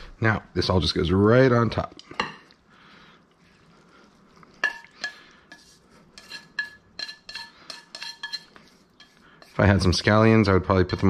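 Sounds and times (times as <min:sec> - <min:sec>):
chopsticks tapping on metal skillet: 0:04.6 - 0:09.6.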